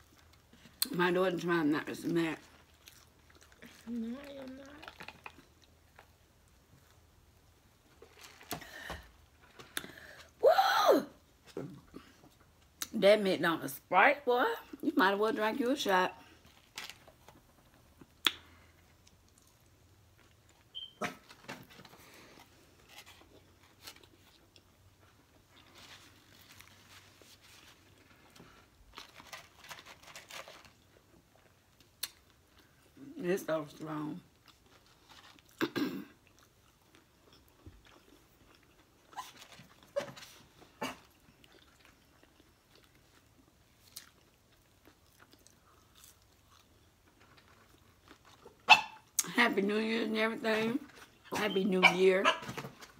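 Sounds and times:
soft chewing: 0:02.4 - 0:08.6, 0:16.2 - 0:21.0, 0:21.8 - 0:33.0, 0:34.3 - 0:49.3
chewing and lip smacks: 0:41.0 - 0:49.3.

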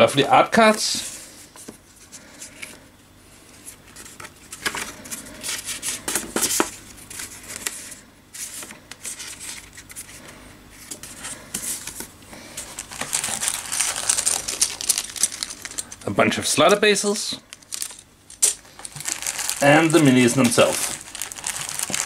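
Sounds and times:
paper cards being shuffled: 0:10.8 - 0:22.0.

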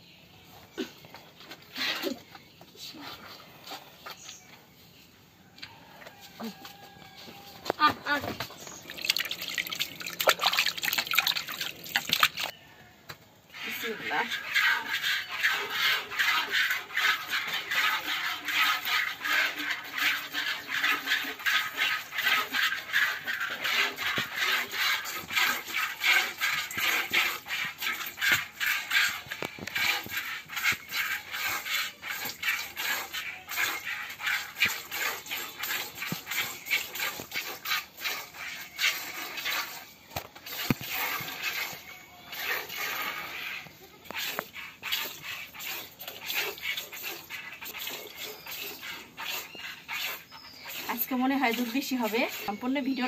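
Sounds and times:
milk squirting into plastic bucket: 0:08.4 - 0:12.5, 0:14.4 - 0:52.4.

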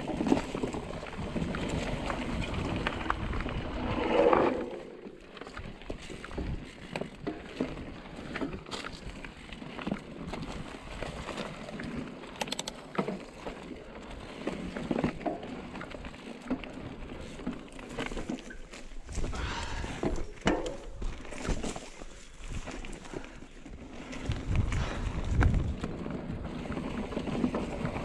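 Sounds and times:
mountain bike rattling on trail: 0:00.0 - 0:28.0
wind buffeting microphone: 0:24.2 - 0:26.7.

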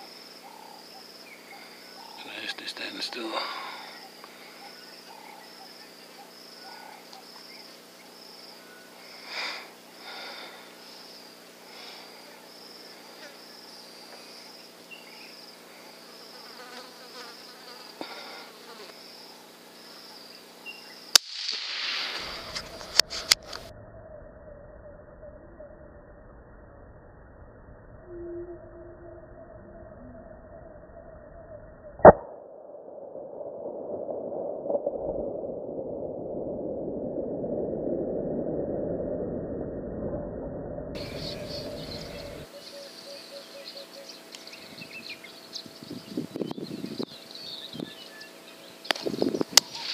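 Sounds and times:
insects buzzing: 0:00.0 - 0:23.7, 0:41.0 - 0:49.9
steady hiss: 0:01.2 - 0:23.7
rifle shot with echo: 0:21.2 - 0:23.0.

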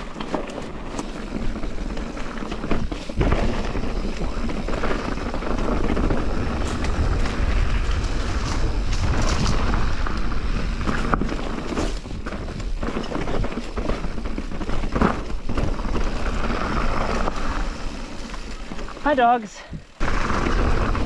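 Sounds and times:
bike knocks and rattles: 0:00.0 - 0:19.2
mountain bike rolling on dirt: 0:00.0 - 0:21.0
wind buffeting microphone: 0:02.8 - 0:14.6.

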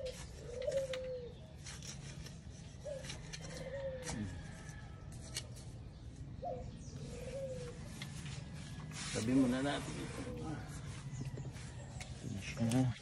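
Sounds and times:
dove cooing: 0:00.0 - 0:01.6, 0:02.7 - 0:04.8, 0:06.4 - 0:08.1.

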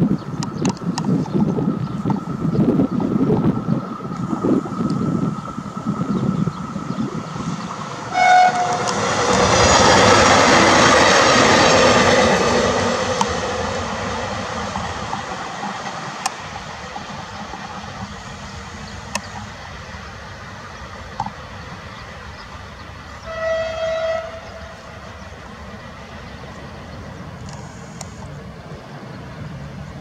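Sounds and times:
diesel train running past: 0:00.0 - 0:30.0
train horn blast: 0:08.1 - 0:09.2, 0:23.2 - 0:24.8
sharp ticks: 0:19.0 - 0:19.5.

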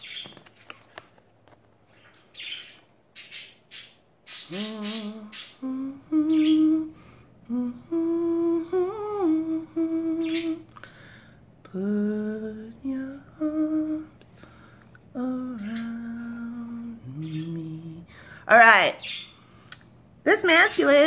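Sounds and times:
cards clicking and rustling: 0:00.2 - 0:01.8
woman humming slow tune: 0:04.5 - 0:10.7, 0:11.6 - 0:14.2, 0:15.1 - 0:18.1.

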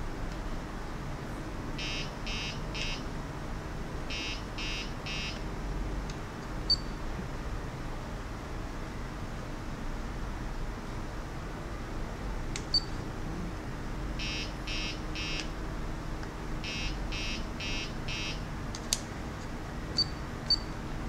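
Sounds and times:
short electronic beeps: 0:01.8 - 0:03.0, 0:04.1 - 0:05.4, 0:06.7 - 0:07.0, 0:12.7 - 0:13.0, 0:14.2 - 0:15.5, 0:16.7 - 0:18.4, 0:20.0 - 0:20.7.

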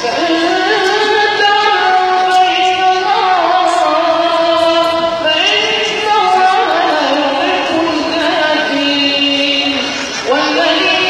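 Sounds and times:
boy reciting melodically: 0:00.0 - 0:11.0.

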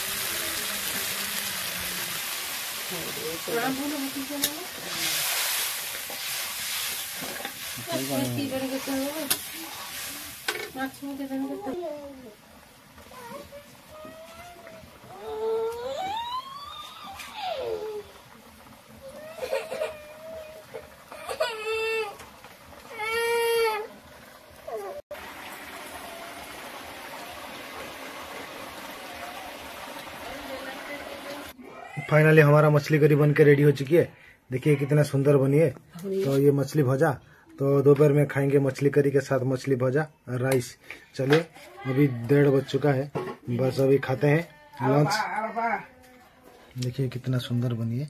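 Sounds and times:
gravy sizzling: 0:00.0 - 0:48.0.

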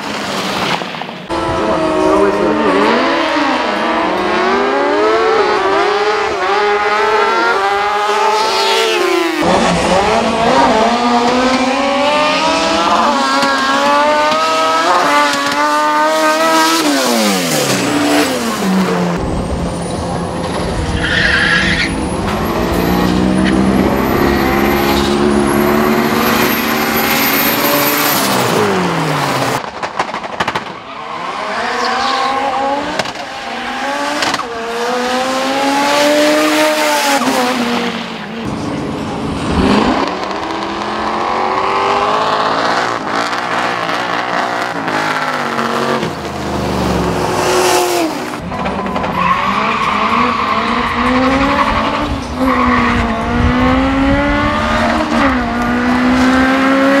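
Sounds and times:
cars revving: 0:00.0 - 0:57.0
motorcycles revving and accelerating: 0:01.3 - 0:19.4, 0:22.1 - 0:29.6, 0:31.2 - 0:57.0
tyres squealing and skidding: 0:16.6 - 0:29.6, 0:30.7 - 0:34.8, 0:43.7 - 0:53.2.

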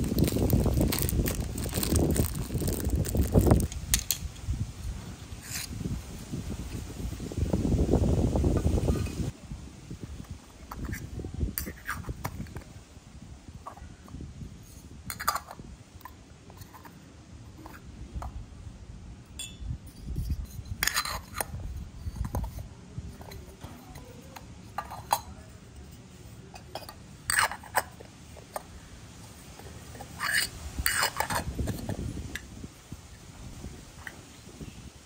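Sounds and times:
soft handling noise: 0:00.0 - 0:04.2.

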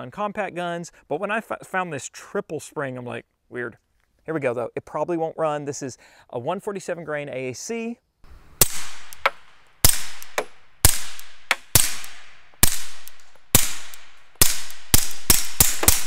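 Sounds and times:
suppressed pistol shots: 0:08.6 - 0:16.0.

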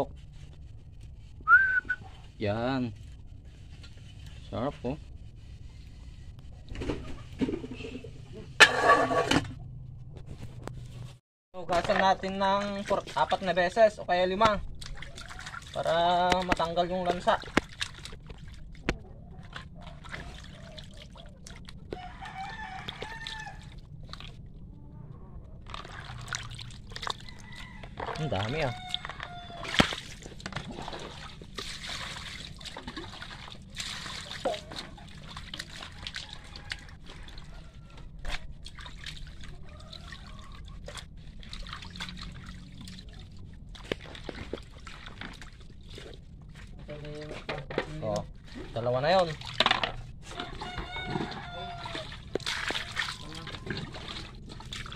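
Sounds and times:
water splashing in a basin: 0:11.6 - 0:24.7, 0:25.5 - 0:54.9
rooster crowing: 0:21.9 - 0:23.8, 0:27.2 - 0:29.8, 0:35.9 - 0:38.2, 0:39.6 - 0:40.7, 0:50.3 - 0:52.2.

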